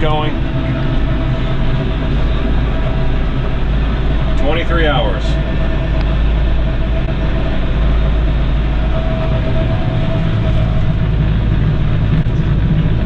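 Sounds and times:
air-conditioning fan: 0.0 - 13.0
tractor diesel engine under load: 0.0 - 13.0.

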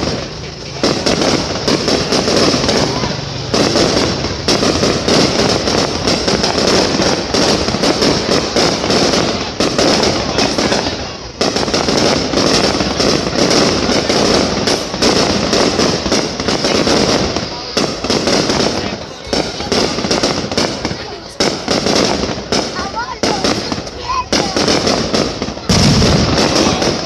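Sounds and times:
fireworks bangs and crackling: 0.0 - 27.0.

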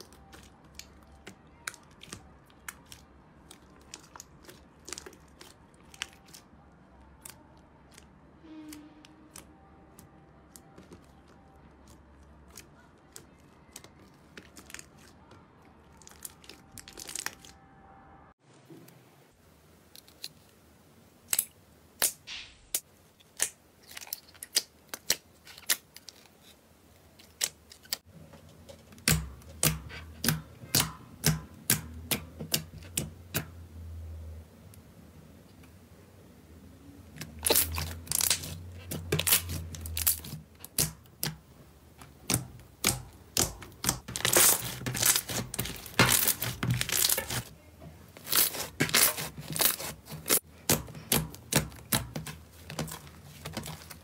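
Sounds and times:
slime popping and crackling: 0.0 - 8.1, 37.2 - 47.5, 48.2 - 54.0.

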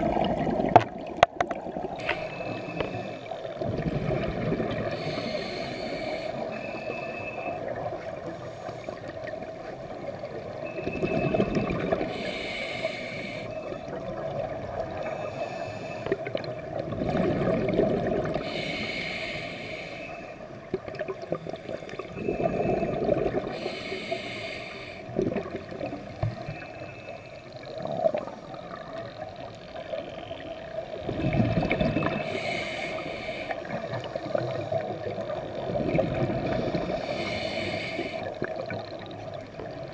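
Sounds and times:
hissing regulator inhale: 2.0 - 3.5, 4.7 - 7.6, 8.3 - 9.2, 12.0 - 13.9, 15.0 - 16.3, 18.3 - 20.6, 21.5 - 25.2, 26.2 - 27.7, 32.1 - 35.0, 36.5 - 38.5
gurgling exhaust bubbles: 16.8 - 18.4, 31.1 - 32.3.

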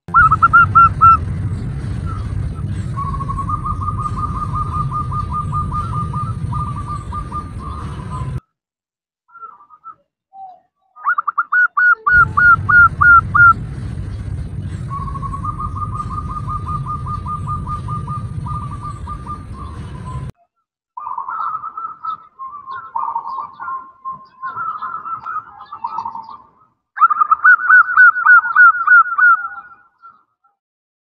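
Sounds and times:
low rumble: 0.1 - 8.4, 12.1 - 20.4
dove cooing: 0.2 - 1.3, 2.0 - 8.4, 14.9 - 20.3, 21.0 - 30.2.

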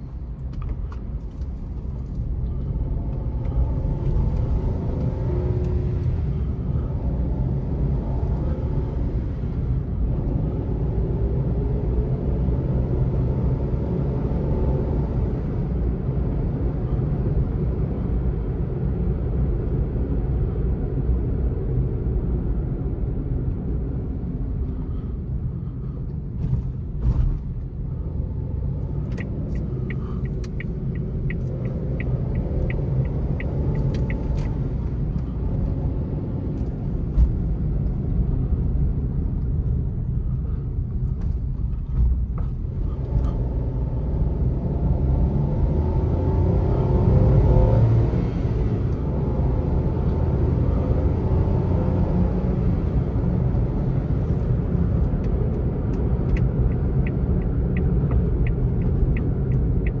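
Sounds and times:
car engine rumble: 0.0 - 60.0
turn signal ticking: 28.7 - 35.5, 53.9 - 60.0.

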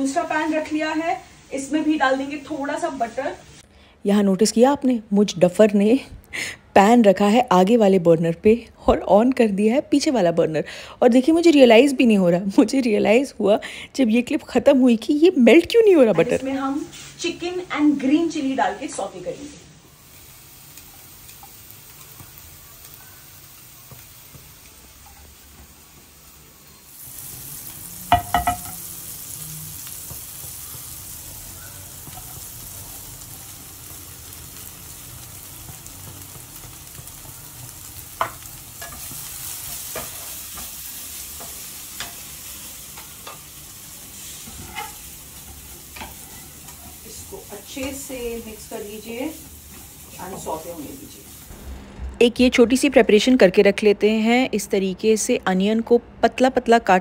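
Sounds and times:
food sizzling in frying pan: 0.0 - 3.6, 15.4 - 52.3
spatula scraping pan: 44.2 - 47.0.

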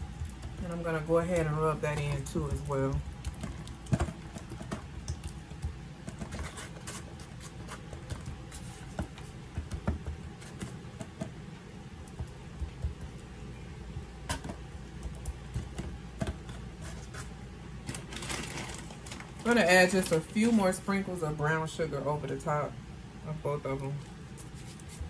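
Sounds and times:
hands patting and rubbing meat: 0.0 - 18.1, 24.2 - 25.0.

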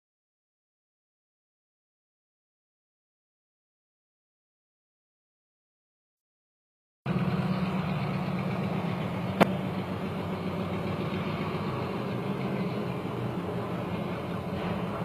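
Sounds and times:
locomotive engine droning: 7.1 - 15.0.

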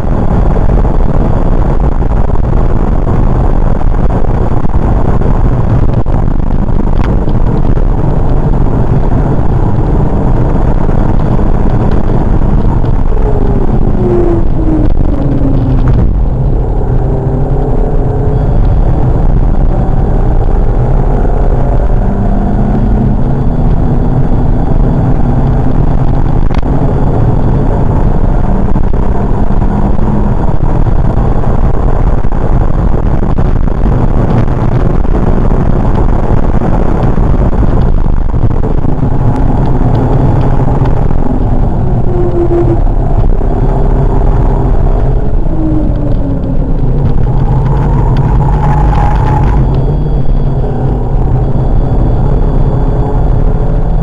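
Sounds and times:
car engine revving: 0.0 - 54.0
road noise: 0.0 - 54.0
wind noise: 0.0 - 54.0.

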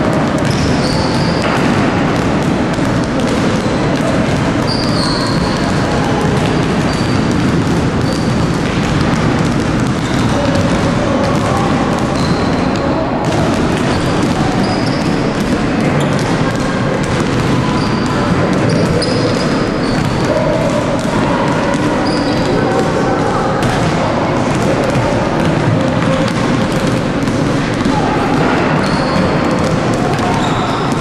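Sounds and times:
basketballs bouncing on wooden floor: 0.0 - 31.0.

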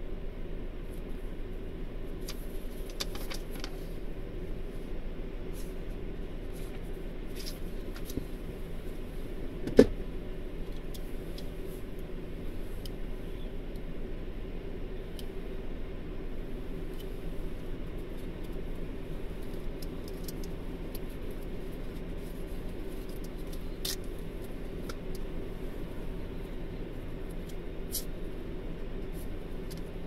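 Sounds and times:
car engine idling: 0.1 - 30.0
small clicks and ticks: 19.4 - 21.9, 23.0 - 25.3.

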